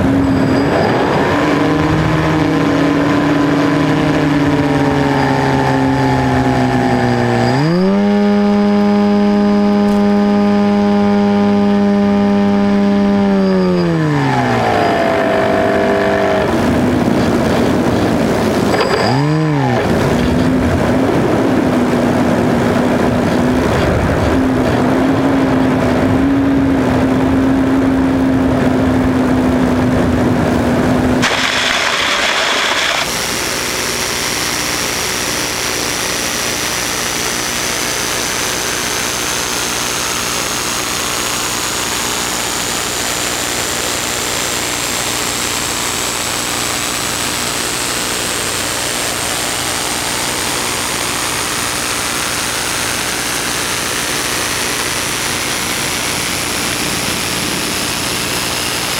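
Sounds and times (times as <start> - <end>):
faint high whine rising in pitch: 0.0 - 16.8, 31.2 - 58.9
rushing air: 29.8 - 35.1.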